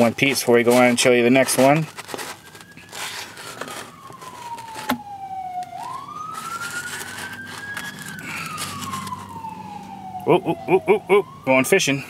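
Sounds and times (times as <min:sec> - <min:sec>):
siren wailing: 0:00.0 - 0:12.0
light rustling: 0:00.2 - 0:09.4.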